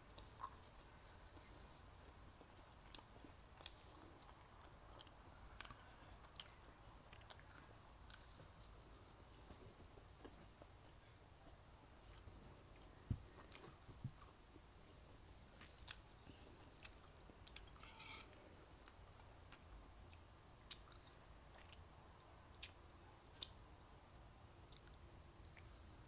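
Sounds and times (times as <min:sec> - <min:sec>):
chewing with wet mouth clicks: 0:02.8 - 0:08.3, 0:15.6 - 0:17.8, 0:18.4 - 0:21.9, 0:24.7 - 0:25.8
chopsticks scraping in ceramic bowl: 0:17.6 - 0:18.4.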